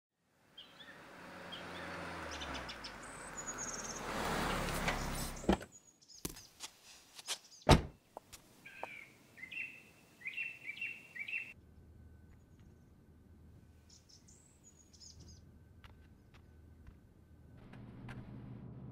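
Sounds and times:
birds chirping: 0.5s - 6.6s, 7.2s - 11.6s, 13.8s - 16.6s
car engine rumble: 0.6s - 5.7s, 15.2s - 18.9s
car door shutting with a thud: 7.7s - 7.9s.

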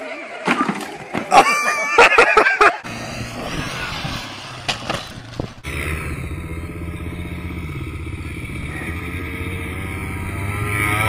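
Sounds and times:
engine running steadily: 2.8s - 11.0s
small engine running: 2.8s - 11.0s.

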